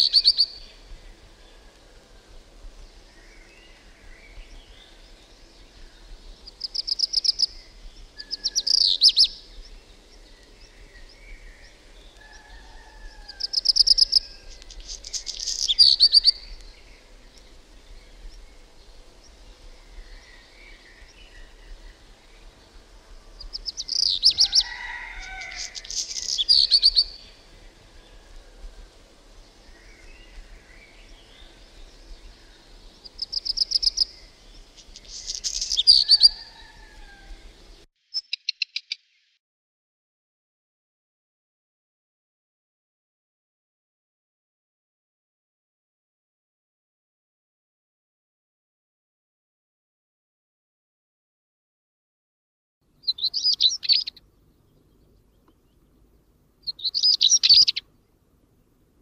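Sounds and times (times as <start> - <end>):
bird singing rattling phrases: 3.2 - 12.0, 13.3 - 28.0, 29.5 - 36.6, 52.9 - 58.1
faint soft bird notes: 52.9 - 58.8.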